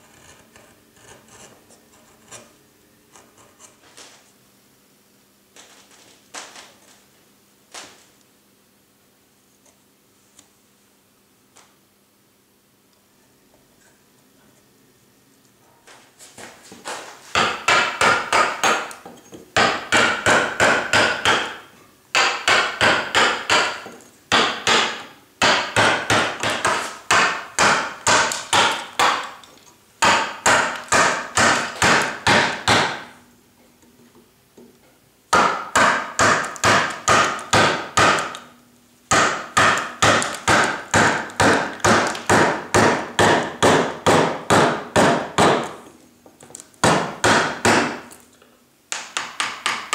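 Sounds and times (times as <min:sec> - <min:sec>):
mallet striking a gouge: 0:17.3 - 0:29.4, 0:30.0 - 0:33.1, 0:35.3 - 0:38.4, 0:39.1 - 0:45.8, 0:46.8 - 0:48.1.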